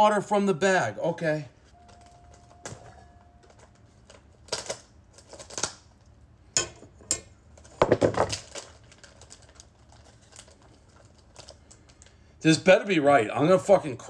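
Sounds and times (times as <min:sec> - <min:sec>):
plastic bag crinkling: 0:07.6 - 0:12.2.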